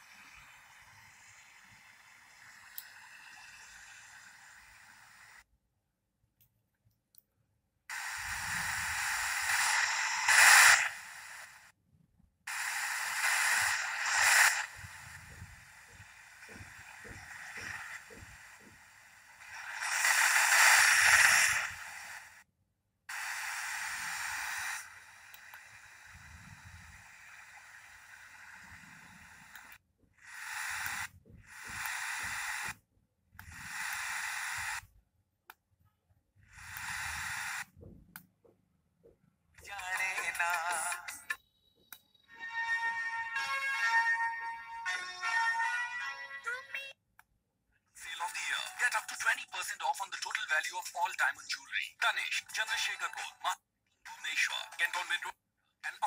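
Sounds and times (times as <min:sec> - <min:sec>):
radio static hissing: 0:00.0 - 0:05.5, 0:07.9 - 0:11.8, 0:12.5 - 0:22.5, 0:23.1 - 0:32.8, 0:33.4 - 0:34.9, 0:36.5 - 0:37.8, 0:39.6 - 0:41.4, 0:48.0 - 0:56.0.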